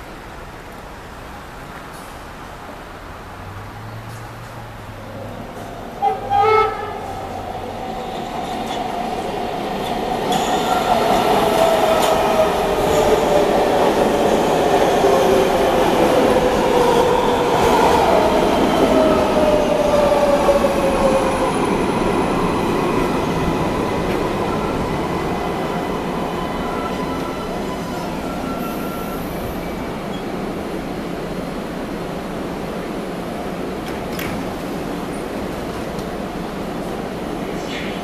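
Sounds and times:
train horn blasts: 6.0 - 7.2.

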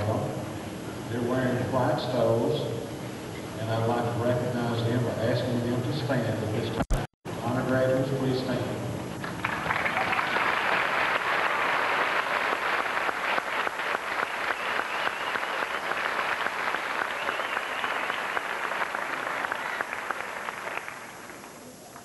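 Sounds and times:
large audience applauding: 9.2 - 22.0.

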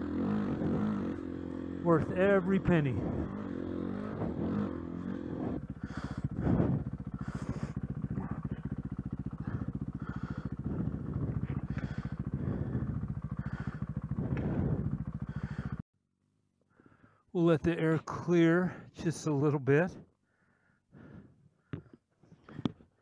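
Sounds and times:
dirt bike engine revving: 0.0 - 15.8.

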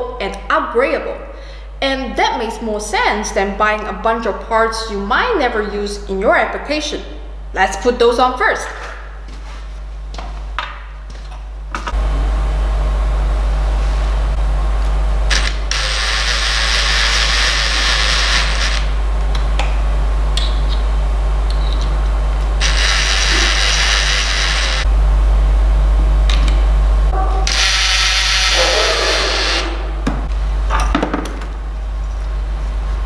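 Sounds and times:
low hum: 11.5 - 33.0
cordless drill driving screws: 15.3 - 18.9, 22.6 - 24.8, 27.5 - 29.7.

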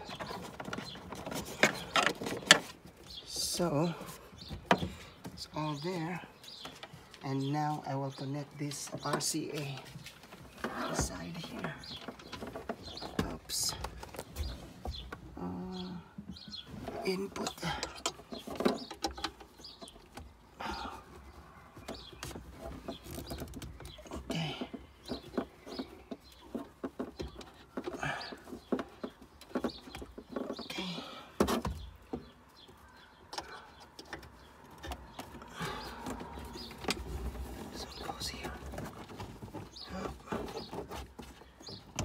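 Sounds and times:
cables clicking and rustling: 0.0 - 7.5.

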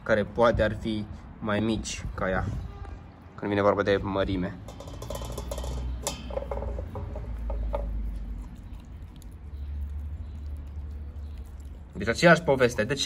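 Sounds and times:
dog chewing with crunches: 7.6 - 12.1.

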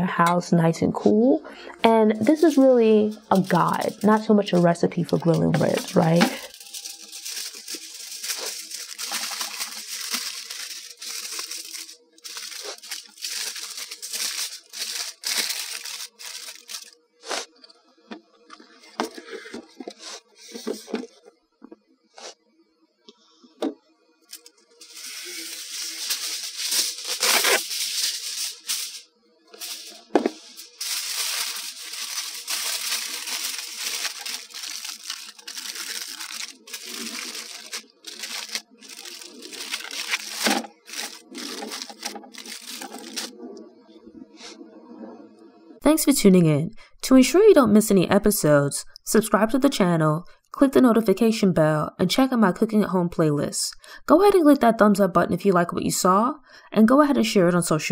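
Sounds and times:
aluminium foil crinkling: 2.1 - 17.6, 24.2 - 43.4.

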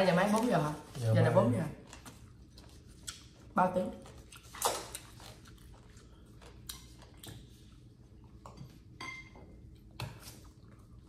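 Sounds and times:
chewing: 1.8 - 9.0.

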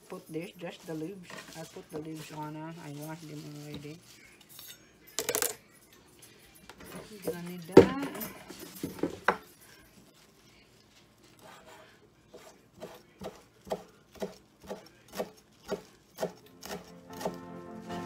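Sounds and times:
knife chopping on wooden board: 12.4 - 17.4.

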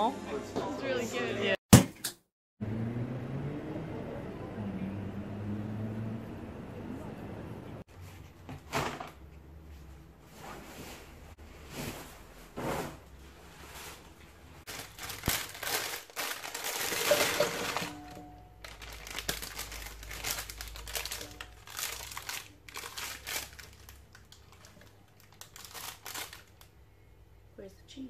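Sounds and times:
packet rustling: 14.7 - 26.7
plastic packaging crinkling: 14.7 - 26.7.

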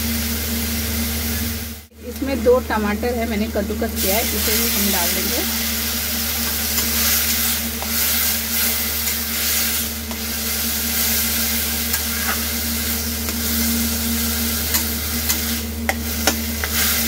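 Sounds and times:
tomato sizzling in hot oil: 0.0 - 17.0
metal spatula scraping pan: 6.4 - 13.8.

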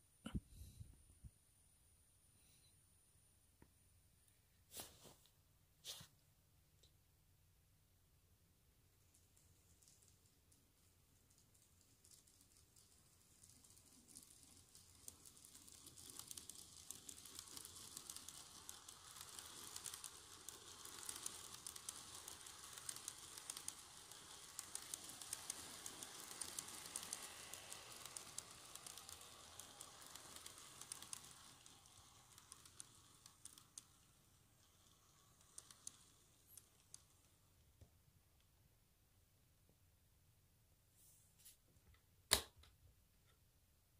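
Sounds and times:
model train running on track: 8.8 - 38.5
wheels clicking over rail joints: 9.0 - 38.0.

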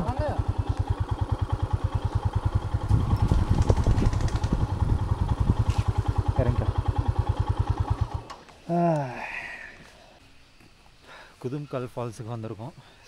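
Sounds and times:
motorcycle engine thumping: 0.0 - 8.5.

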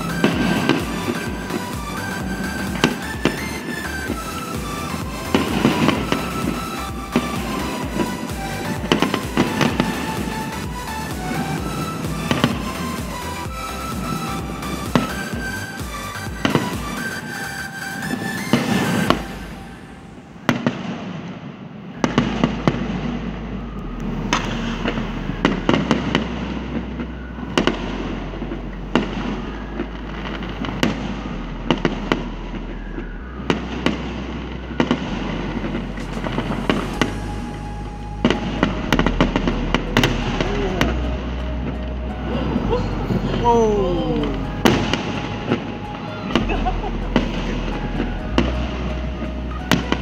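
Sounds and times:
fireworks bangs and crackles: 0.0 - 50.0.

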